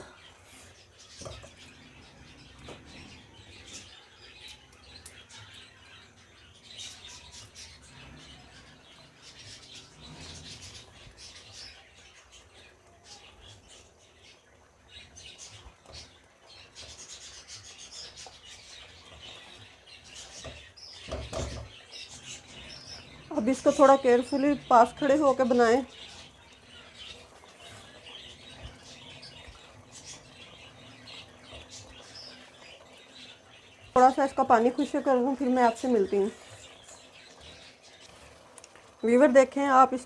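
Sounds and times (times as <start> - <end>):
thick mixture bubbling and popping: 13.6 - 40.0.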